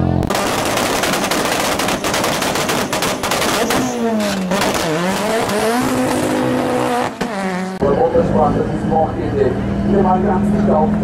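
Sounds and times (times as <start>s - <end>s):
race car engine revving: 0.0s - 11.0s
rapid crackle of bangs: 0.3s - 4.9s.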